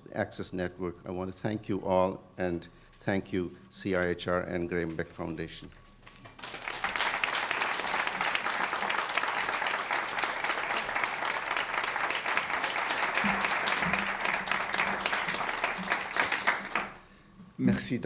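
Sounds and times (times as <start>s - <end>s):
audience applauding: 6.2s - 17.1s.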